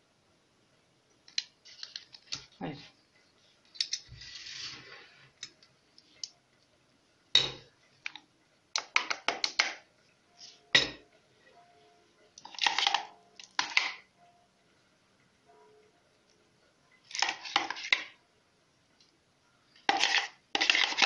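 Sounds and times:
metal spoon scraping bowl: 3.9 - 5.2, 19.8 - 21.0.

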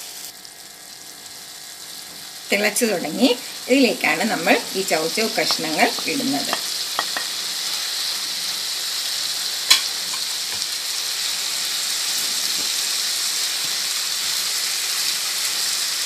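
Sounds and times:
sauce sizzling and bubbling: 0.0 - 16.0
spatula stirring: 4.5 - 7.9.

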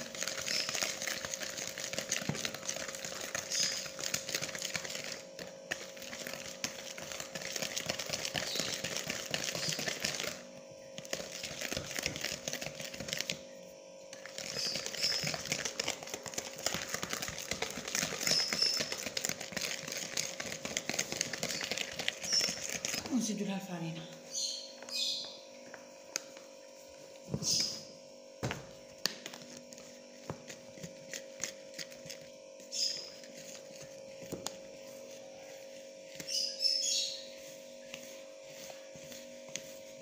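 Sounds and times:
whisk beating batter in a bowl: 0.0 - 13.4, 14.1 - 23.4
faint hum: 0.0 - 40.0.

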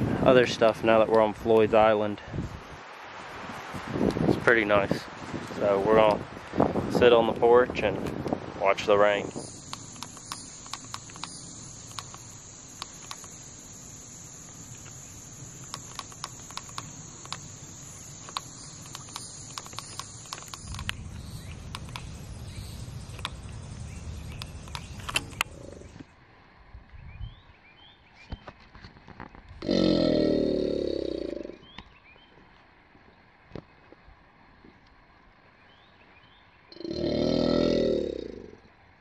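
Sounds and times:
high-pitched insect drone: 9.0 - 26.0
sharp ticks and taps: 9.4 - 13.4, 15.6 - 22.2, 23.0 - 23.6.

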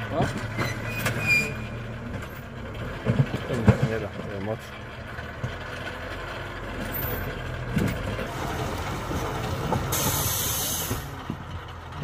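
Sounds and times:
tractor diesel engine running: 0.0 - 12.0
loud hiss: 9.9 - 11.1.

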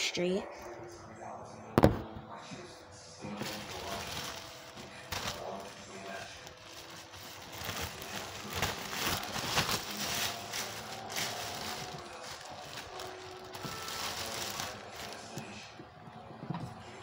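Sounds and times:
plastic bag crinkling: 3.2 - 15.8.

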